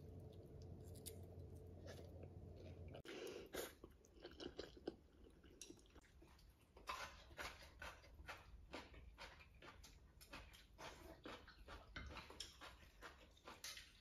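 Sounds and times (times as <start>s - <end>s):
child slurping and chewing noodles: 2.9s - 14.0s.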